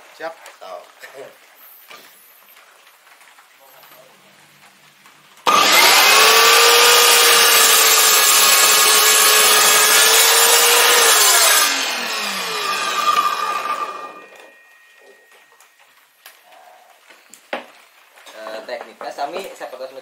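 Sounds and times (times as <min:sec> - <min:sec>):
electric miter saw cutting wood: 0:05.5 - 0:14.6
saw blade coasting down: 0:05.5 - 0:14.6.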